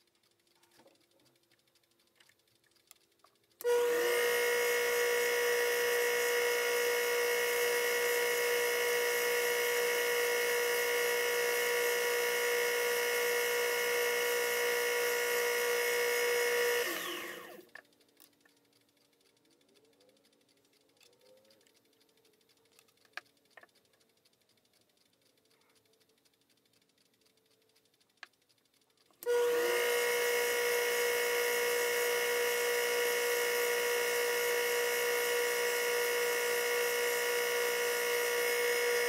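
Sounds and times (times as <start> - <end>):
lathe whining: 3.6 - 17.7, 29.2 - 39.0.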